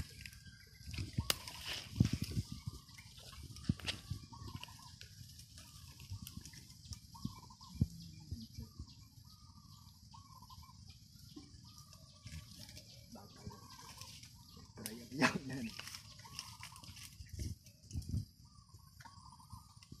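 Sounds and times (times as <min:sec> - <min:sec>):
dry bamboo leaves snapping: 0:00.0 - 0:02.4, 0:03.2 - 0:07.1, 0:13.7 - 0:18.1.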